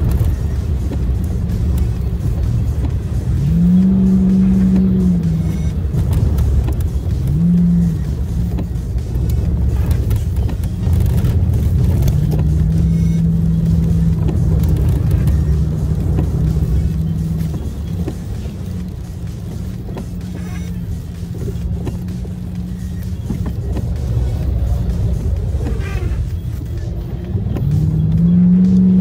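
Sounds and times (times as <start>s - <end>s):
car engine and tyre rumble: 0.0s - 29.0s
low hum rising in pitch: 3.2s - 6.6s, 27.4s - 29.0s.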